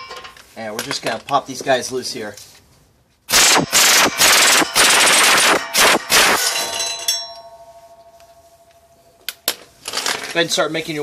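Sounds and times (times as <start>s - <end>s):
impact wrench hammering: 3.3s - 7.6s
ringing tone: 6.5s - 9.2s.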